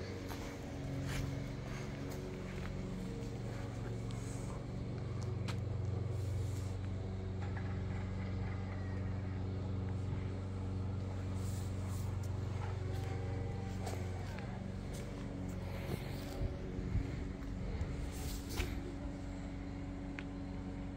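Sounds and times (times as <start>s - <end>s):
low mechanical hum: 0.0s - 20.9s.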